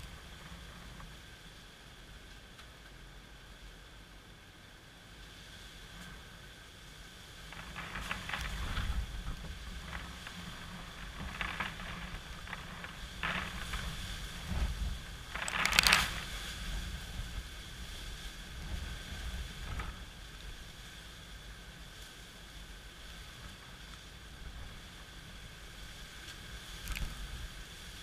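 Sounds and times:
gusty wind buffeting microphone: 5.9 - 21.9.

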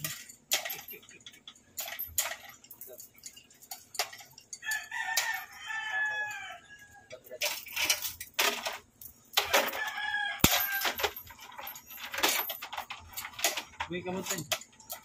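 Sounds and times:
chain hoist clanking: 0.0 - 15.0
rooster crowing: 4.6 - 7.1, 9.4 - 11.1.

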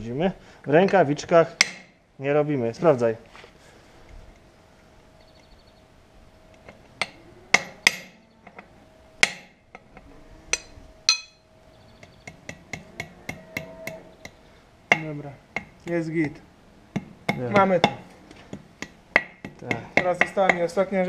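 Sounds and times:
hammer striking metal chisel: 1.6 - 1.9, 7.0 - 8.1, 9.2 - 9.6, 10.5 - 11.4, 12.0 - 15.8, 17.0 - 20.7.

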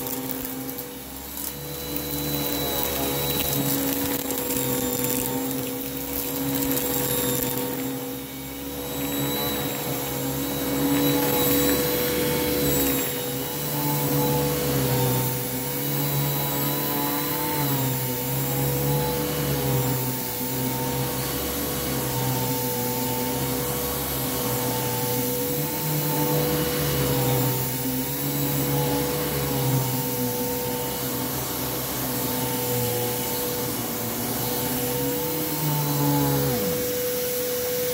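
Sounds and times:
vacuum cleaner running on carpet: 0.0 - 37.9.

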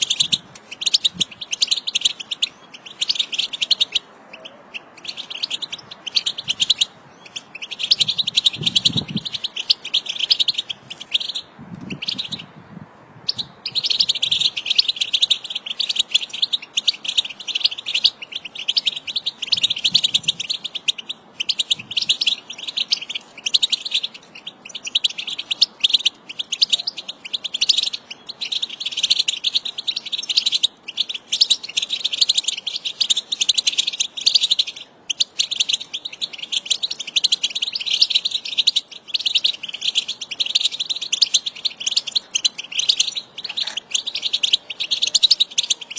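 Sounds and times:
finches twittering: 0.0 - 12.5, 13.3 - 45.9.

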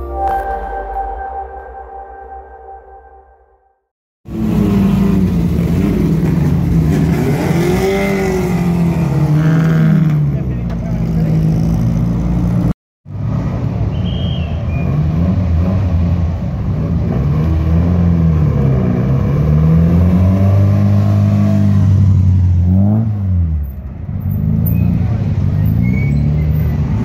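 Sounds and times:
racing car engines revving past: 4.3 - 13.8.

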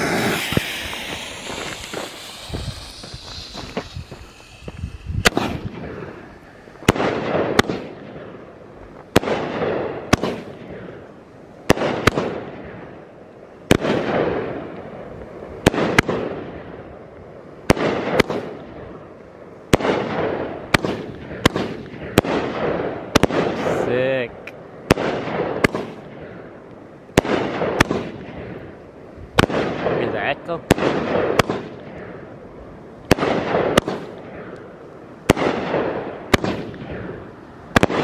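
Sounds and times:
fuse hissing: 0.0 - 6.8
fireworks bangs: 0.0 - 11.0, 13.7 - 16.9, 19.7 - 26.5, 27.1 - 32.2, 33.0 - 38.0.

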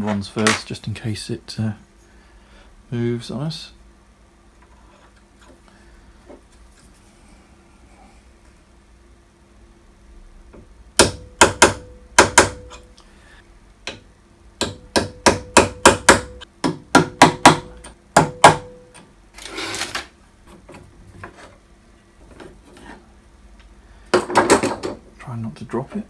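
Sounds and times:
hammer tapping metal: 11.0 - 12.9, 13.8 - 19.0.

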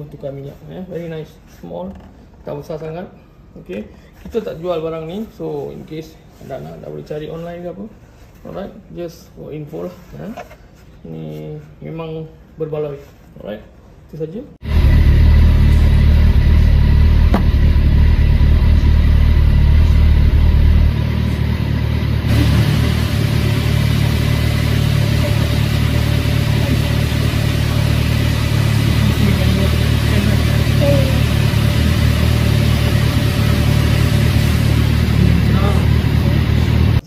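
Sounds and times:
vehicle engine running loudly: 14.6 - 37.0.

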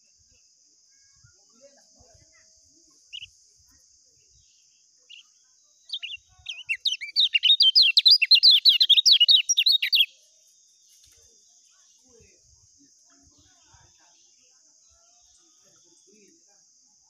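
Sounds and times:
bird singing rapid trill: 4.2 - 10.3.

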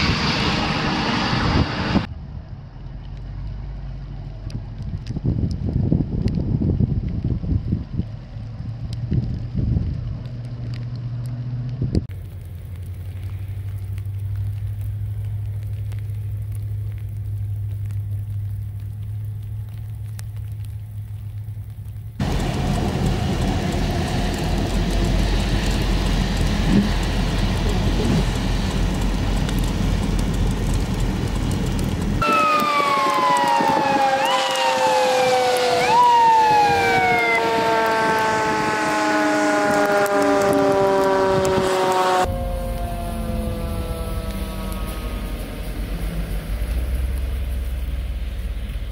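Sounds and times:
broad rushing rumble: 0.0 - 48.9
fire engine siren wailing: 22.2 - 48.0.

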